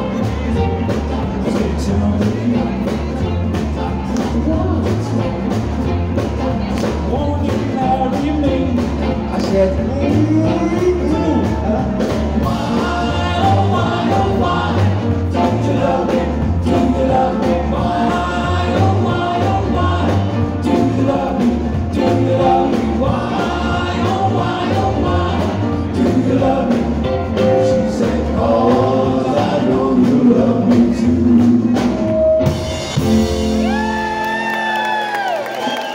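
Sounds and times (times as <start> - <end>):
male voices singing in harmony: 0.0 - 3.1, 7.1 - 32.0
bass line: 0.0 - 35.7
drums: 0.0 - 35.9
crowd whooping and cheering: 33.4 - 35.9.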